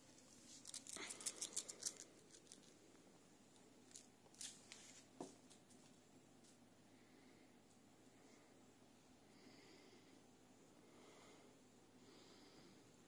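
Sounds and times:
kitten claws crinkling play mat: 0.4 - 2.8, 3.8 - 5.8.

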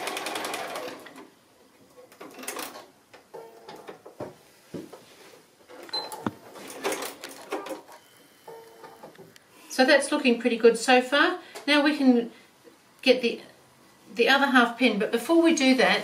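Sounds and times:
sewing machine stitching: 0.0 - 1.2.

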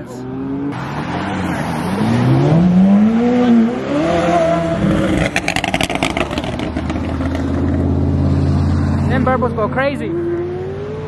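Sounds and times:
car engine revving: 0.2 - 11.0
exhaust pops and crackles: 5.2 - 7.8.

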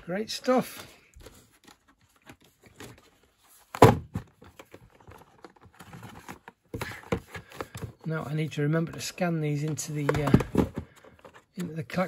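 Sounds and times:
plastic cases clicking and tapping: 8.8 - 11.7
cases set down with thunk: 10.0 - 11.0.

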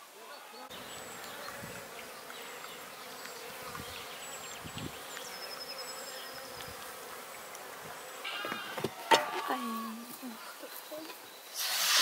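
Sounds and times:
bees buzzing: 0.6 - 11.6.

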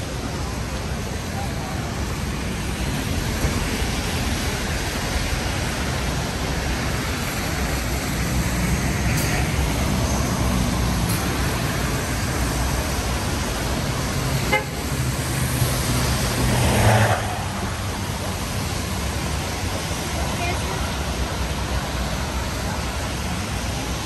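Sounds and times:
car engines running: 0.0 - 24.0
rain hiss: 0.0 - 24.0
tyres on wet road: 0.0 - 24.0
car horn toot: 14.5 - 14.8.

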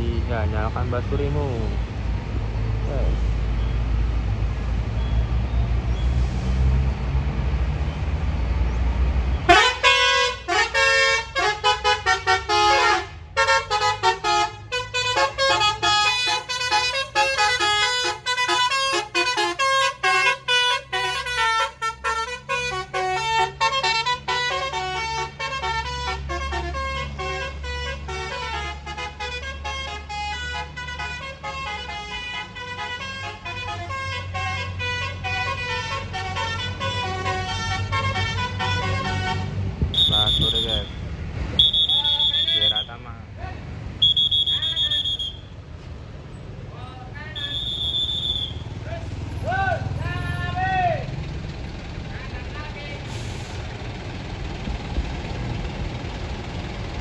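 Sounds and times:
bus engine rumble: 0.0 - 57.0
bus horn playing a tune: 9.4 - 41.0, 41.6 - 42.8.

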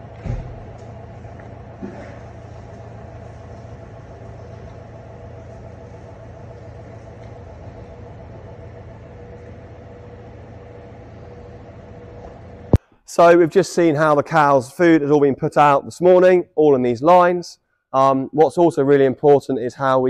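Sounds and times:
feed wagon engine running: 0.0 - 12.8.

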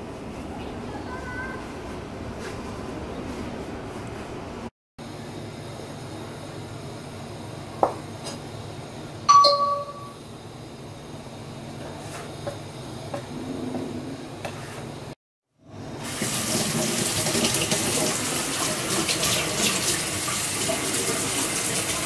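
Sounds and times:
ringing metallic clink: 9.3 - 10.2.

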